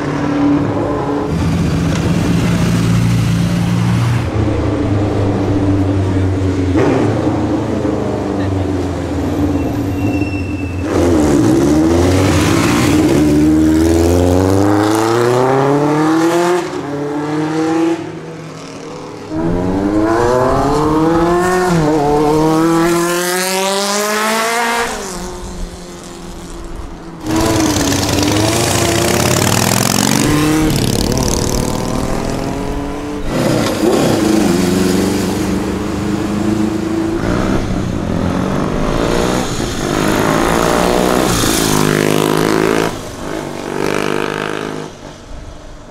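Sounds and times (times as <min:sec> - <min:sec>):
motorcycles accelerating past: 0:27.2 - 0:44.9.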